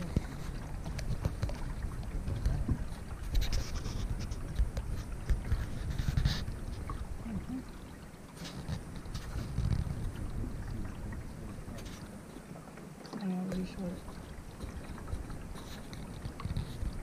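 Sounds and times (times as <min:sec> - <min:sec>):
paddle strokes in water: 0:00.0 - 0:17.0
small water splashes: 0:00.0 - 0:17.0
steady low rumble: 0:08.8 - 0:12.2.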